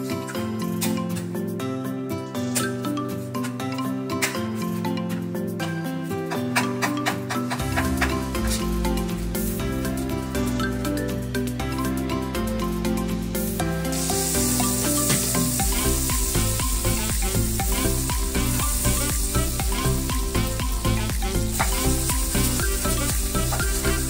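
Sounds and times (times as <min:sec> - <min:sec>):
background music: 0:00.0 - 0:24.0
onion and garlic frying: 0:13.3 - 0:24.0
butter sizzling in a wok: 0:13.4 - 0:24.0.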